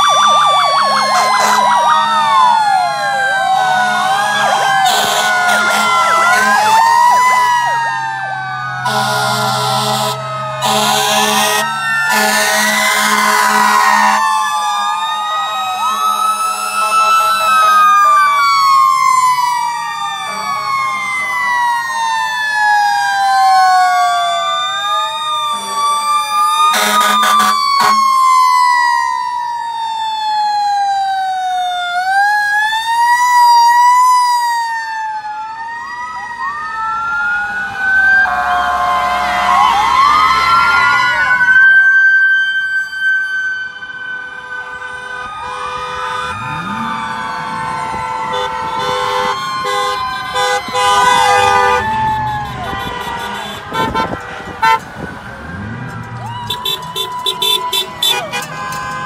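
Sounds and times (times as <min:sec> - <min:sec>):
fire engine sirens wailing: 0:00.0 - 0:59.0
fire truck air horn blasts: 0:00.8 - 0:01.9, 0:03.8 - 0:07.0, 0:08.8 - 0:14.3, 0:26.7 - 0:28.2, 0:44.2 - 0:47.0, 0:47.9 - 0:59.0.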